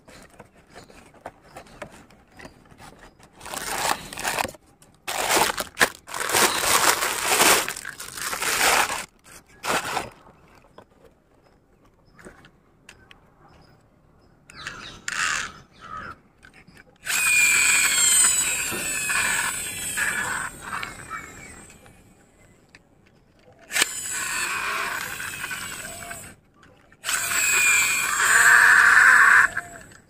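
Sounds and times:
toy gear motor whirring: 2.3 - 4.5, 5.1 - 10.1, 17.0 - 22.1, 23.6 - 30.0.

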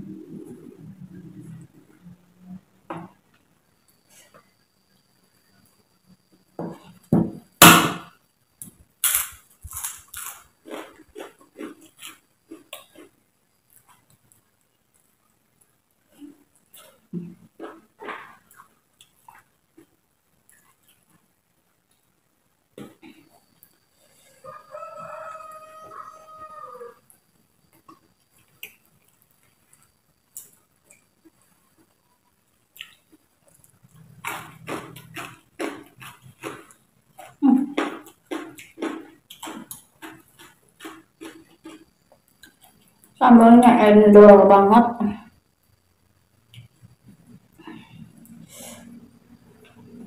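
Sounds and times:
cracker crunching and chewing: 8.6 - 21.3, 27.7 - 43.2
rooster crowing: 24.2 - 27.0.

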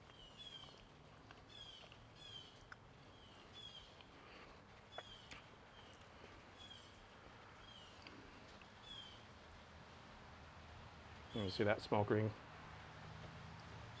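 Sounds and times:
bird chirping: 0.0 - 9.4.

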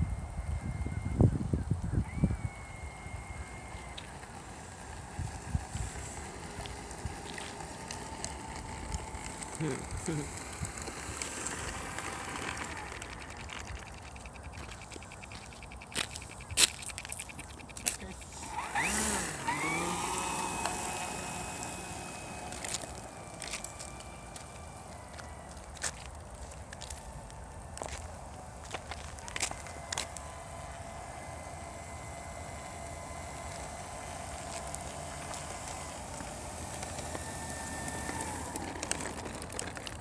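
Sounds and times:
wind rumble on microphone: 0.0 - 3.3
model plane motor and propeller: 0.0 - 40.0.

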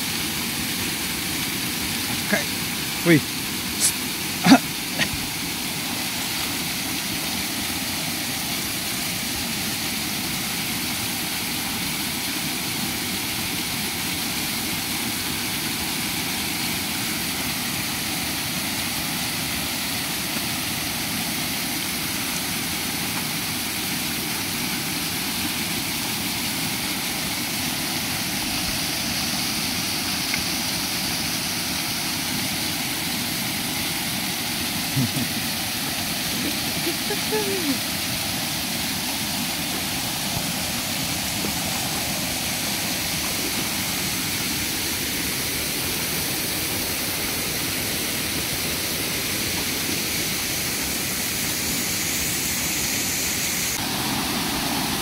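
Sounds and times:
small waterfall pouring onto rock: 0.1 - 55.0.

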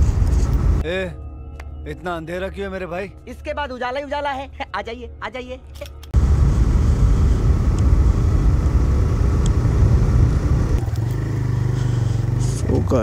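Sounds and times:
motorcycle engine running: 6.2 - 13.0.

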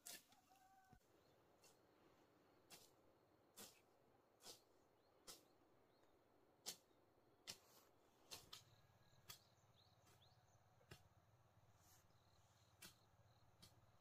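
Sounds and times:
hand hoe chopping soil: 0.0 - 0.6, 2.6 - 5.6, 6.6 - 11.3, 12.1 - 14.0.

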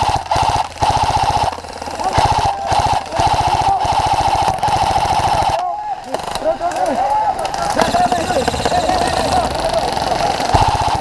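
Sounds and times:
airsoft rifle full-auto bursts: 0.0 - 6.6, 7.5 - 11.0.

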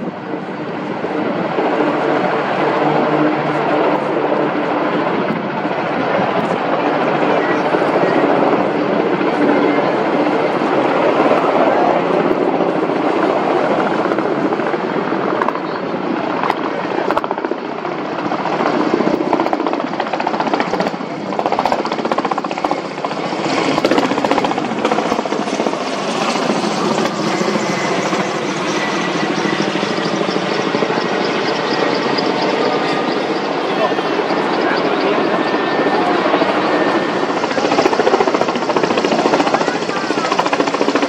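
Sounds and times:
helicopter rotor chop: 0.0 - 41.0
helicopter turbine noise: 0.0 - 41.0.

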